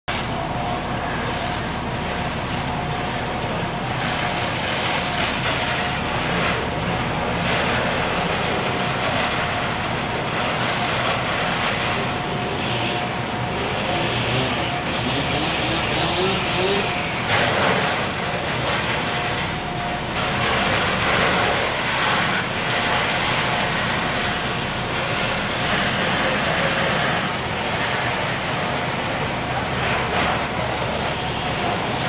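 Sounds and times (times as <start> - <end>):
hose streams spraying: 0.1 - 19.5
fire engine pump droning: 0.1 - 32.0.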